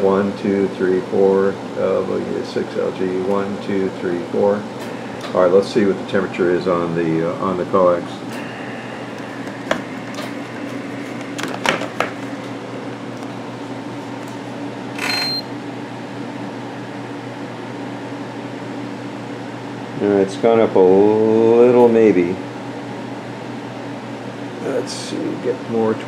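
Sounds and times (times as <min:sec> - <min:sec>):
equipment cooling fan hum: 0:00.0 - 0:26.0
thermometer beep: 0:15.0 - 0:15.5.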